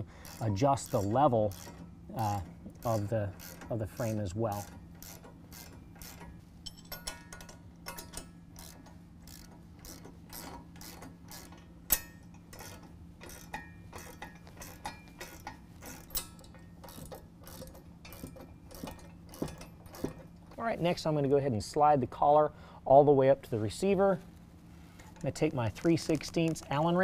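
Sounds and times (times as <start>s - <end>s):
steady low hum: 0.0s - 27.0s
socket ratchet clicking: 2.7s - 20.5s
sharp metal clack: 6.0s - 8.4s, 11.9s - 20.2s.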